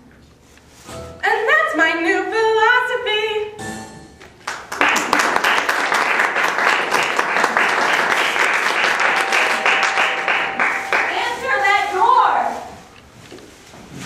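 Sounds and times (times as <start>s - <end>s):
audience applauding: 4.4s - 11.4s.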